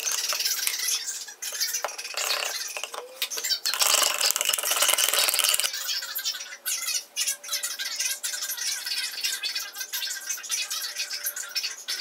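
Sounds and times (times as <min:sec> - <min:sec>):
stick scraping resin in cup: 0:00.0 - 0:05.7.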